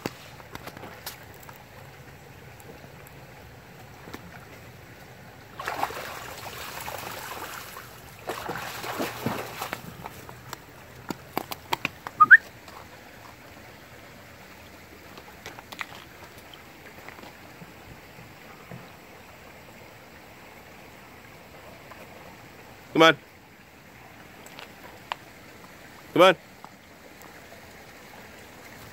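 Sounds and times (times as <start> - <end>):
footsteps crunching in snowy stream bed: 0.0 - 1.8, 6.7 - 13.5, 14.9 - 17.7.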